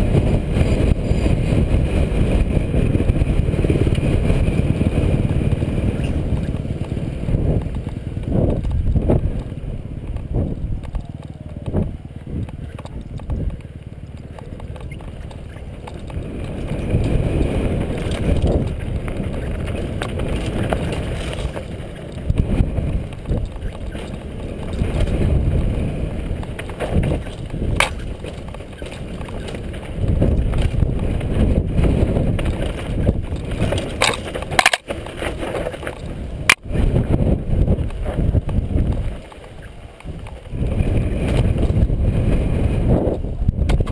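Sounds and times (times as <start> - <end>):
bike rattling: 0.0 - 43.9
bike tyres on loose dirt: 0.0 - 43.9
wind rumble on microphone: 0.0 - 43.9
sharp knocks over bumps: 2.3 - 36.7.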